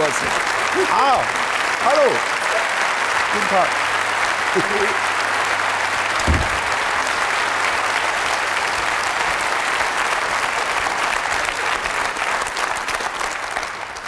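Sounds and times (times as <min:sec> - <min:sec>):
audience applauding: 0:00.0 - 0:14.0
low thump: 0:06.2 - 0:06.8.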